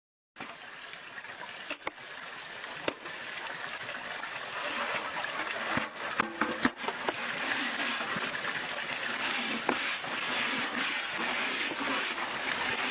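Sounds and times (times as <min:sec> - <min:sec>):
water running and trickling: 0:00.4 - 0:12.9
brush scrubbing metal bowl: 0:06.7 - 0:08.3, 0:09.1 - 0:12.9.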